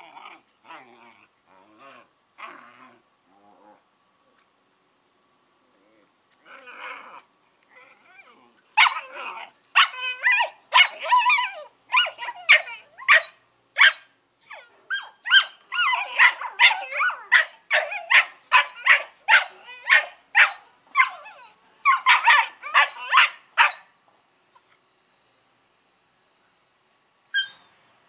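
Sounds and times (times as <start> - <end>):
puppies barking and yipping: 8.8 - 23.8.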